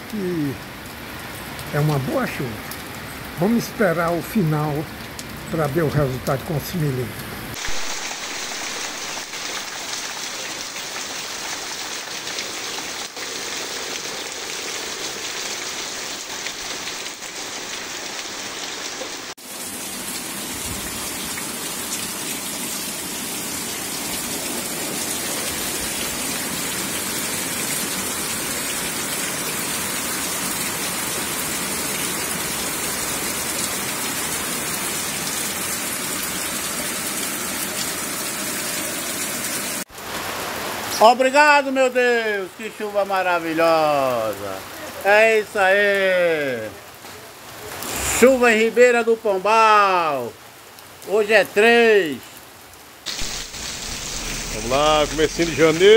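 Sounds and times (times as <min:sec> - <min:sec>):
heavy rain pouring: 0:00.0 - 0:55.9.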